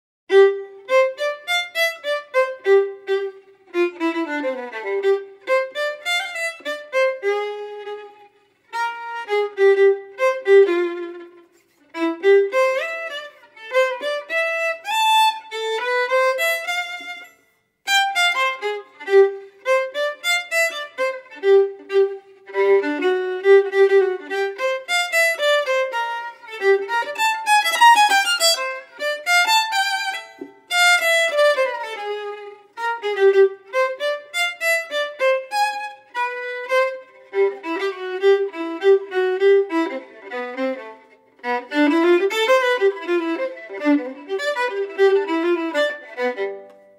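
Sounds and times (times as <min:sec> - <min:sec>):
violin melody of quick notes: 0:00.3 - 0:46.9.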